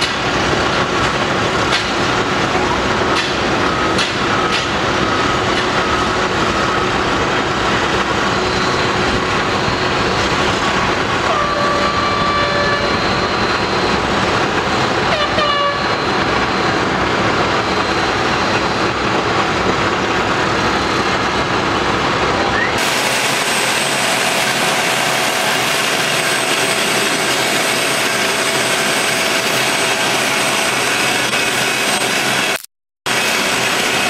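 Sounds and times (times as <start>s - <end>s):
heavy diesel machinery: 0.0s - 34.0s
backup alarm beeping: 3.5s - 19.8s
high squealing tones: 3.6s - 19.4s.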